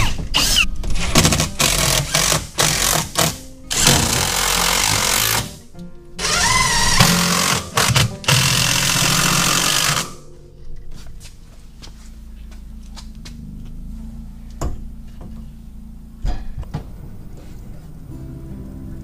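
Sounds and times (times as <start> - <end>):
cordless drill driving screws: 1.3 - 5.6, 6.2 - 10.2.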